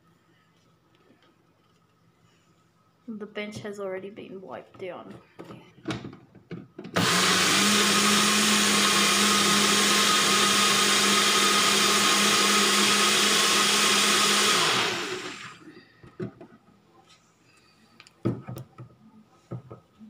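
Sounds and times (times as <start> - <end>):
blender motor humming: 7.0 - 15.7.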